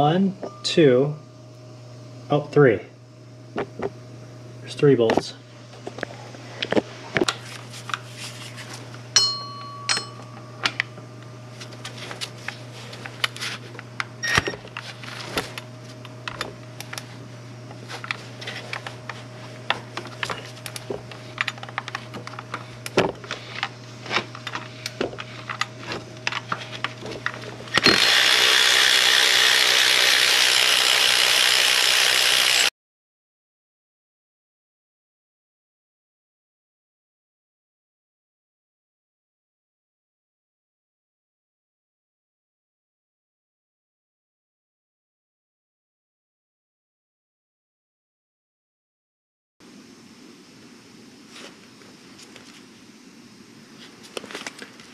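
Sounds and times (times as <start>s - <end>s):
tools clinking against engine: 9.2s - 10.8s
cordless ratchet running: 27.2s - 32.7s.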